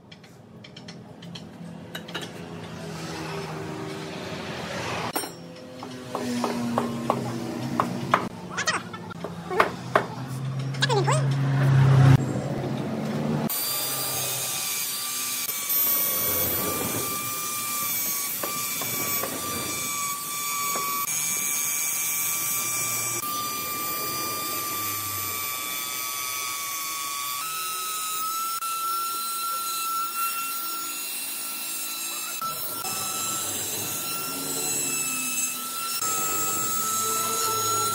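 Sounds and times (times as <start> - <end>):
die grinder carving wood: 13.5 - 37.9.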